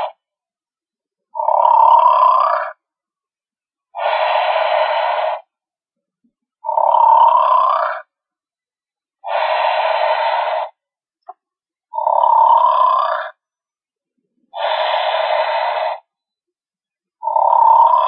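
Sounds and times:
toy playing recorded snore: 0:00.0 - 0:00.3, 0:01.3 - 0:02.9, 0:03.9 - 0:05.6, 0:06.6 - 0:08.2, 0:09.2 - 0:10.8, 0:11.9 - 0:13.5, 0:14.4 - 0:16.1, 0:17.2 - 0:18.0.

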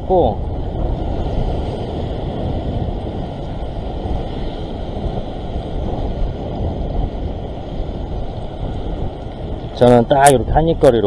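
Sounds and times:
heavy surf breaking on rocks: 0:00.0 - 0:11.0
wind buffeting microphone: 0:00.0 - 0:11.0.

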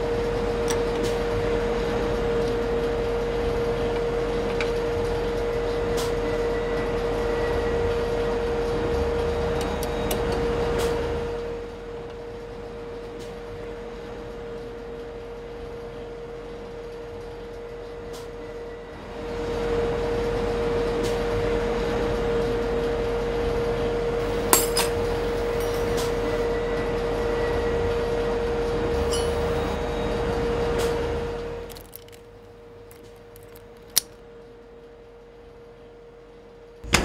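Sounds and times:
sharp metallic clink: 0:24.5 - 0:26.0.

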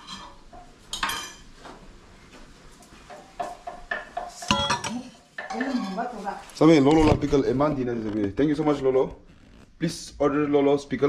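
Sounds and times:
metal pots and utensils clattering: 0:00.0 - 0:01.6, 0:03.1 - 0:07.4.

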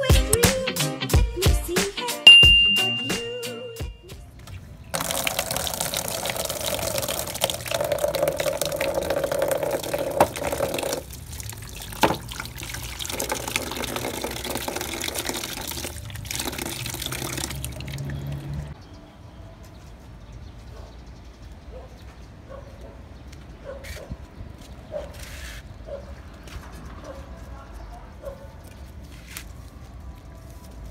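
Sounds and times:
water pouring into plastic basin: 0:05.0 - 0:18.8.

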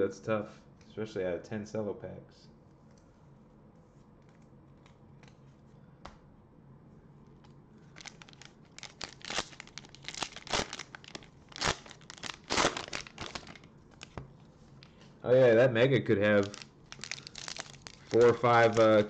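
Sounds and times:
plastic wrapper tearing and crinkling: 0:08.0 - 0:14.2, 0:16.3 - 0:19.0.

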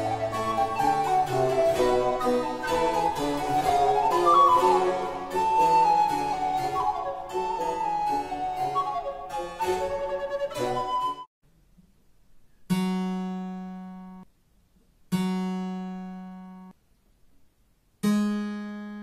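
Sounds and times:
harpsichord playing: 0:00.0 - 0:11.0.

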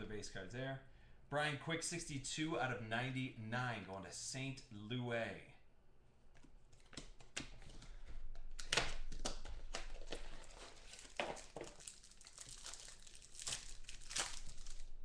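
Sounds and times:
wrapper tearing and crinkling: 0:08.5 - 0:15.0.

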